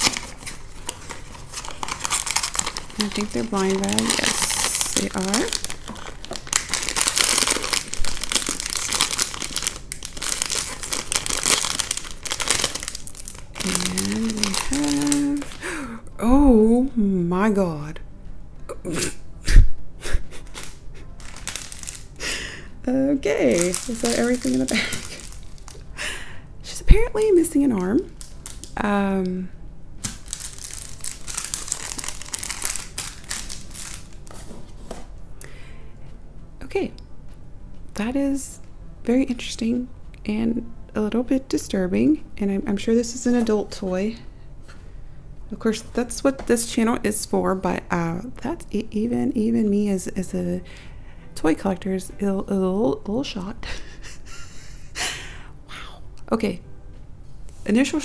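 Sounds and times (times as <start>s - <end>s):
toy packaging crinkling: 0.0s - 15.7s, 20.6s - 22.2s, 23.4s - 25.9s, 27.1s - 28.8s, 30.0s - 34.3s.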